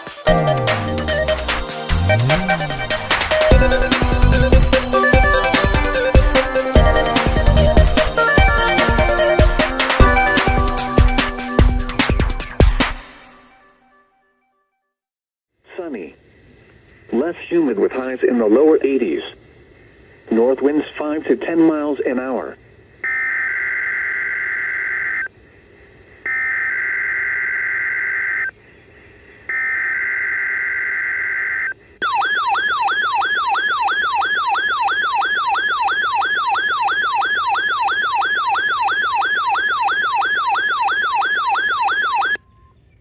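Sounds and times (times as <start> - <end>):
warbling alert alarm tone: 0.3 - 12.5, 32.0 - 42.4.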